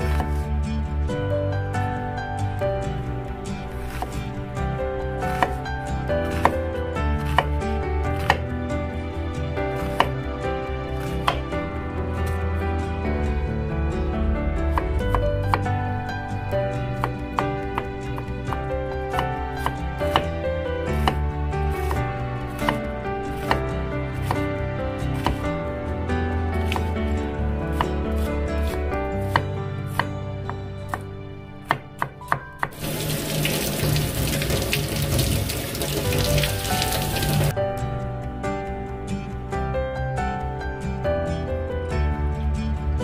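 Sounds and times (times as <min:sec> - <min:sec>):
knife chopping on wooden board: 0:00.0 - 0:00.4, 0:03.8 - 0:04.3, 0:05.3 - 0:05.6, 0:06.2 - 0:06.6, 0:07.2 - 0:07.6, 0:08.2 - 0:08.5, 0:09.8 - 0:10.2, 0:11.0 - 0:11.4, 0:19.2 - 0:20.4, 0:21.0 - 0:24.4, 0:25.1 - 0:25.4, 0:26.6 - 0:27.0, 0:27.7 - 0:31.0
gentle background music: 0:00.0 - 0:43.0
tap water running: 0:32.6 - 0:37.5.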